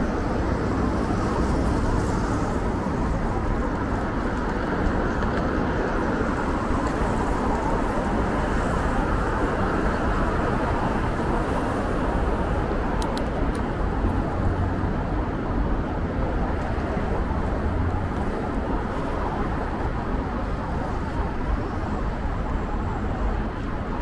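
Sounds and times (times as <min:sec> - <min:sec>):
city street traffic: 0:00.0 - 0:24.0.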